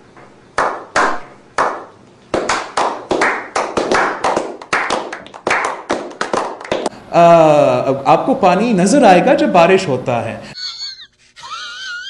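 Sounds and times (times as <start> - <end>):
people clapping: 0.6 - 6.9.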